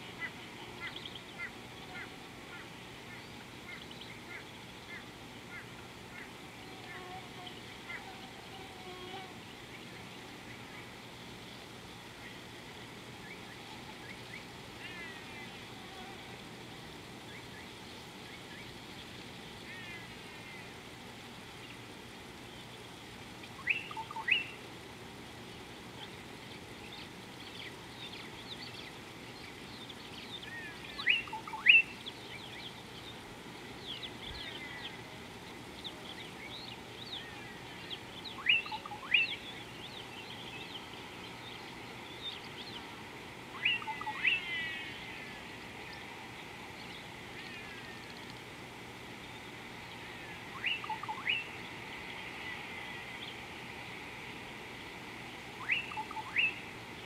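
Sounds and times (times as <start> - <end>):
birds chirping and twittering: 0.0 - 57.0
bird calls rising quickly: 23.6 - 24.6, 43.5 - 45.5, 50.0 - 51.6, 55.6 - 56.6.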